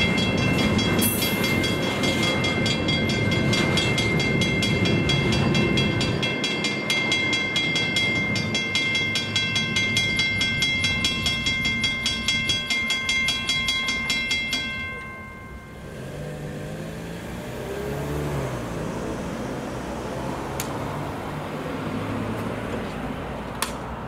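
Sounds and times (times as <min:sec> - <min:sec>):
level crossing bell ringing: 0:00.0 - 0:16.2
car engine pulling away: 0:15.8 - 0:22.7.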